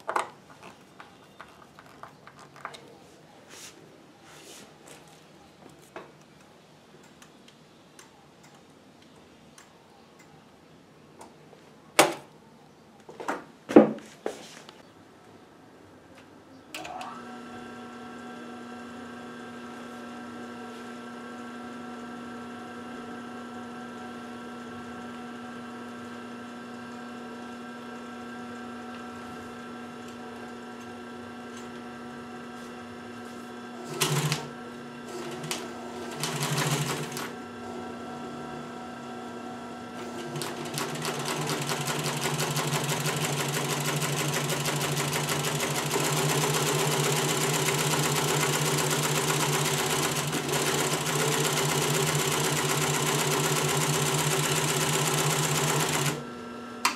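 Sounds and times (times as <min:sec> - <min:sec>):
sewing machine stitching: 0:33.8 - 0:37.5, 0:40.0 - 0:56.2.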